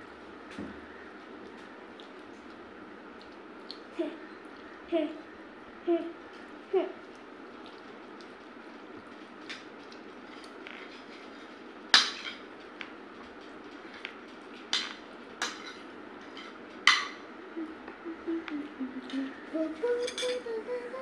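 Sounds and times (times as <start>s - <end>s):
spoons clinking on plates: 11.9s - 12.5s, 14.7s - 17.2s, 20.0s - 20.4s.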